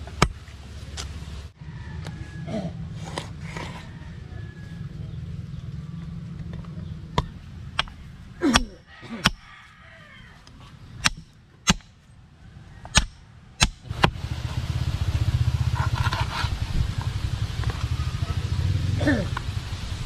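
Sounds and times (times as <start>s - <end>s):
low rumble: 12.1s - 20.0s.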